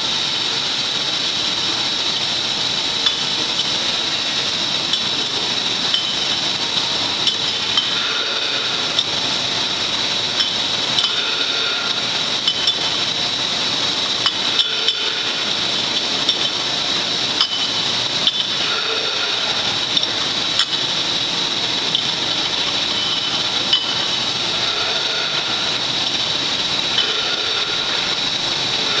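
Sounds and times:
machine noise: 0:00.0 - 0:29.0
glass jars clinking: 0:05.9 - 0:06.4, 0:07.2 - 0:09.1, 0:10.4 - 0:13.0, 0:17.3 - 0:20.9, 0:21.8 - 0:28.1.

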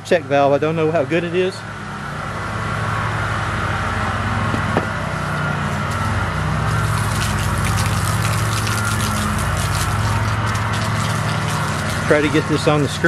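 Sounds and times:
pressure washer running: 0:01.7 - 0:13.0
water spattering from hose: 0:06.7 - 0:13.0.

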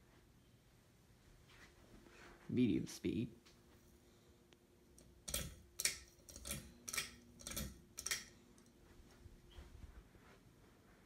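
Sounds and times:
faint steady hum: 0:00.0 - 0:11.0.

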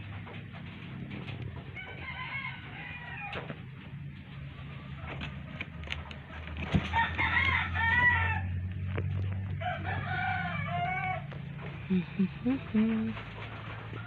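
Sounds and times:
steady low hum: 0:00.0 - 0:14.0
rooster crowing: 0:01.8 - 0:03.7, 0:06.8 - 0:08.7, 0:09.5 - 0:11.4.

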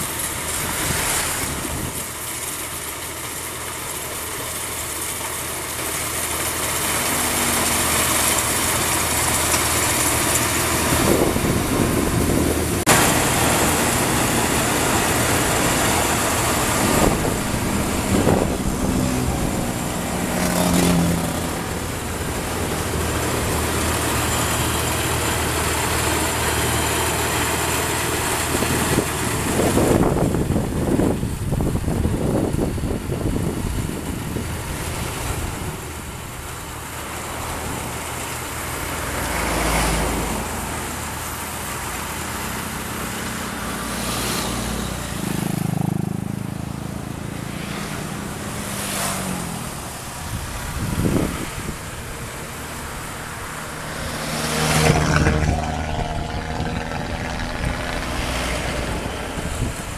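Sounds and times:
harvester engine under load: 0:00.0 - 0:45.6.

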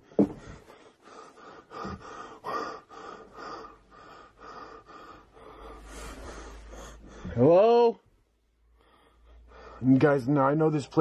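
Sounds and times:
person breathing quickly: 0:00.0 - 0:07.4, 0:08.7 - 0:09.9.

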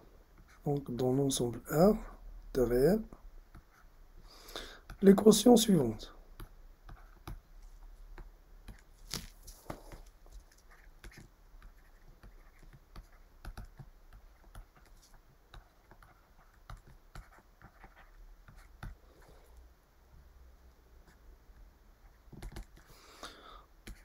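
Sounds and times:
stylus tapping and scratching tablet: 0:02.6 - 0:04.0, 0:04.8 - 0:19.6, 0:21.0 - 0:23.0, 0:23.8 - 0:24.0.

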